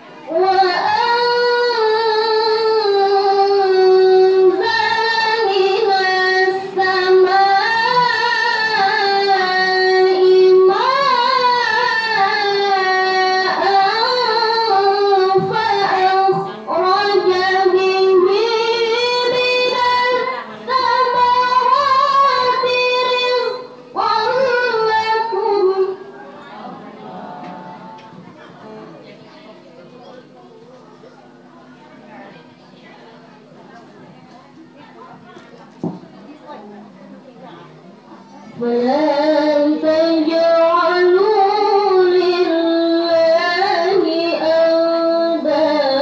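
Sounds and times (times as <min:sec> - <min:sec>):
girl reciting in melodic style: 0:00.0 - 0:28.3, 0:38.2 - 0:46.0.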